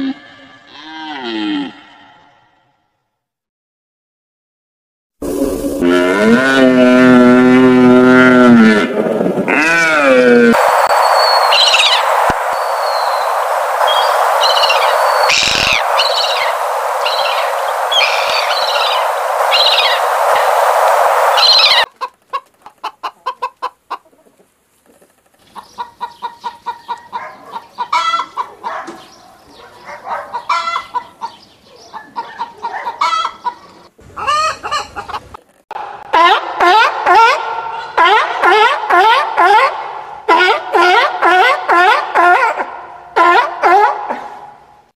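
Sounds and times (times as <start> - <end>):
steady rushing noise: 10.6 - 21.9
gull calls: 11.2 - 20.3
hens clucking: 21.4 - 29.0, 30.1 - 35.5.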